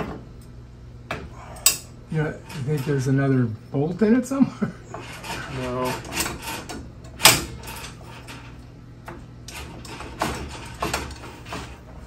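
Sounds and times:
tools clicking and knocking on metal: 0:01.1 - 0:03.1, 0:04.9 - 0:11.8.

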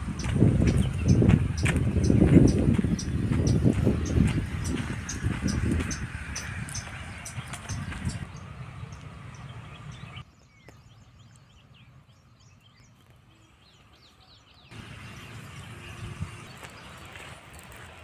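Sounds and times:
low microphone rumble: 0:00.0 - 0:10.2
small birds chirping: 0:00.0 - 0:18.0.

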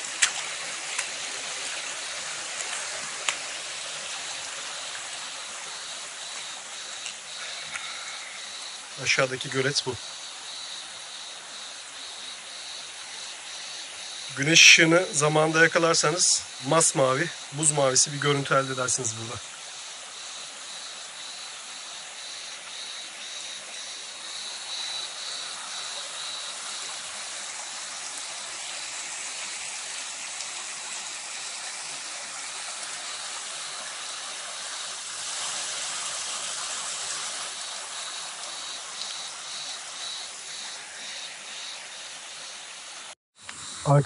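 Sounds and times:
creek water rushing: 0:00.0 - 0:44.0
insect chirping: 0:00.0 - 0:44.0.

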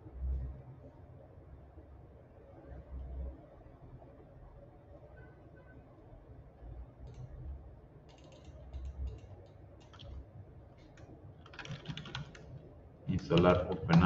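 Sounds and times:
mouse and keyboard clicks: 0:08.1 - 0:10.2, 0:13.2 - 0:14.0.

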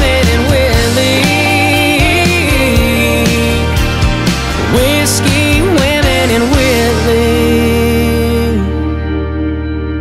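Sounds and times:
steady drum beat: 0:00.0 - 0:07.8
country instrumental music: 0:00.0 - 0:10.0.

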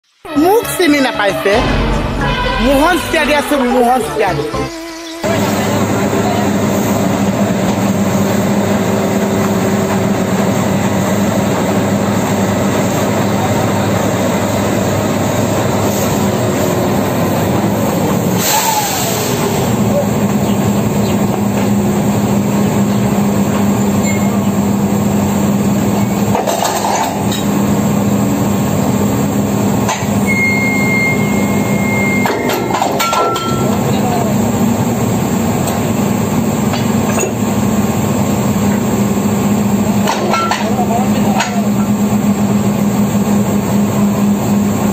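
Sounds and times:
loud mechanical drone: 0:00.1 - 0:26.5.

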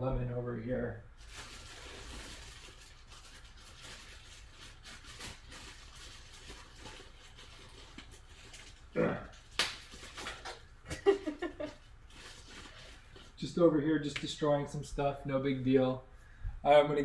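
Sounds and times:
short pitched vocal sound: 0:09.0 - 0:09.4.

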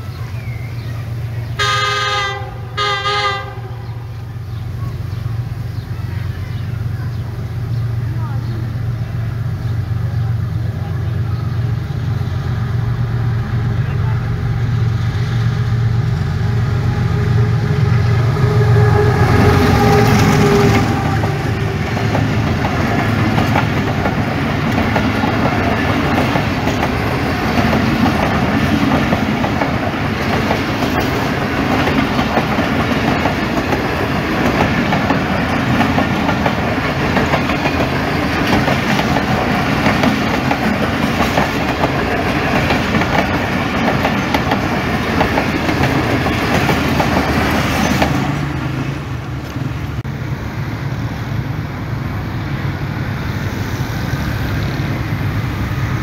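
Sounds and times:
diesel locomotive engine drone: 0:00.0 - 0:56.0
train wheels clattering over joints: 0:21.6 - 0:48.4.

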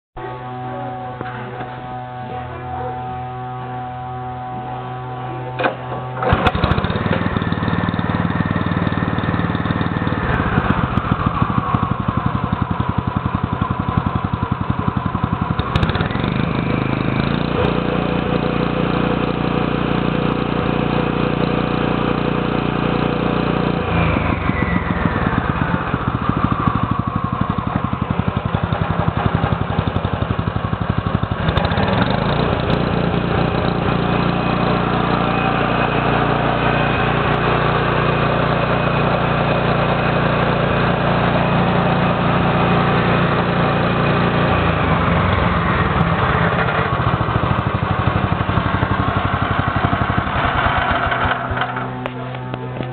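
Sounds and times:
whine falling in pitch: 0:00.2 - 0:06.3
petrol engine revving and idling: 0:00.2 - 0:52.9.

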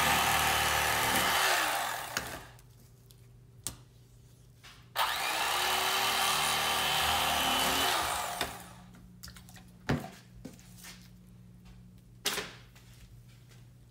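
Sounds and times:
electric fillet knife buzzing: 0:00.0 - 0:02.6, 0:05.0 - 0:08.8.

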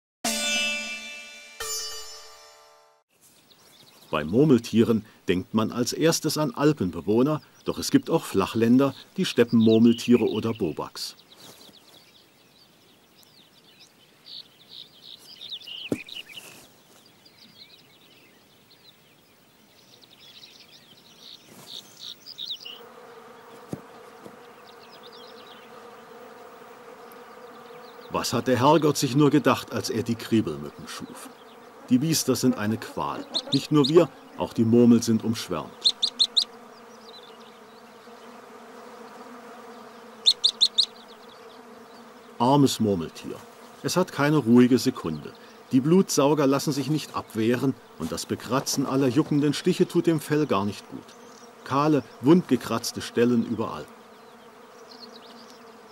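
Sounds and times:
swarm of flies buzzing: 0:03.5 - 0:55.9
high quick chirping calls: 0:08.6 - 0:22.8, 0:31.0 - 0:34.6, 0:35.5 - 0:38.4, 0:39.8 - 0:42.3
sharp high chirps: 0:35.8 - 0:36.5, 0:40.3 - 0:41.0.

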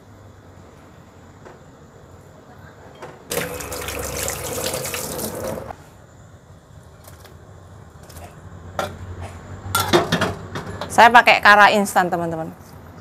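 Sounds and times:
tap running into sink: 0:03.3 - 0:05.7.

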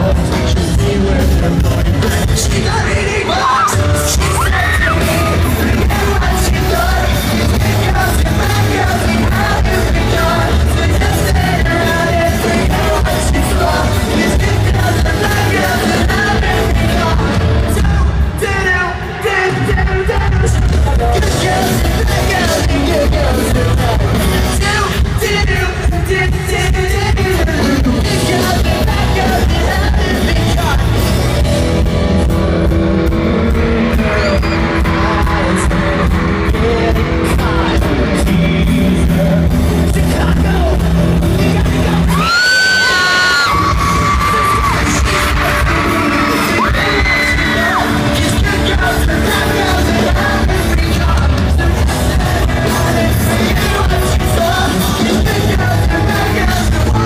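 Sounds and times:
live pop-rock band: 0:00.0 - 0:57.0
male lead vocal: 0:00.0 - 0:57.0.

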